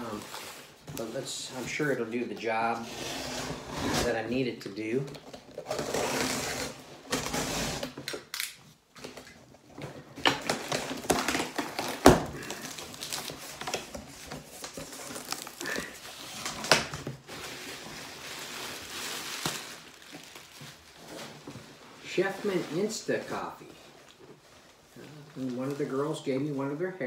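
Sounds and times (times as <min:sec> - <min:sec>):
cardboard scraping and rustling: 0:02.7 - 0:04.2, 0:20.2 - 0:23.5.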